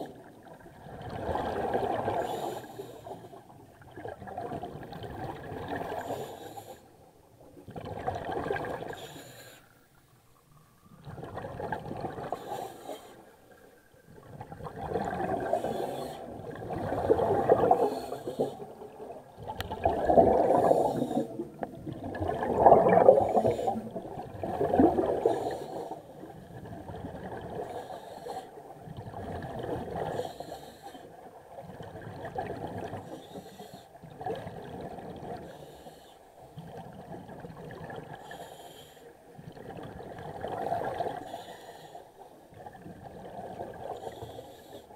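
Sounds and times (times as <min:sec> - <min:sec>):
diver breathing through regulator: 0:02.2 - 0:03.3, 0:05.9 - 0:06.9, 0:08.9 - 0:09.8, 0:12.3 - 0:13.3, 0:15.3 - 0:16.4, 0:17.1 - 0:18.9, 0:20.1 - 0:21.7, 0:23.1 - 0:24.0, 0:25.1 - 0:26.5, 0:27.6 - 0:28.6, 0:30.0 - 0:31.1, 0:33.0 - 0:34.0, 0:35.4 - 0:36.3, 0:38.2 - 0:39.2, 0:41.1 - 0:42.2, 0:43.9 - 0:44.9
bubbling exhalations: 0:19.4 - 0:25.5.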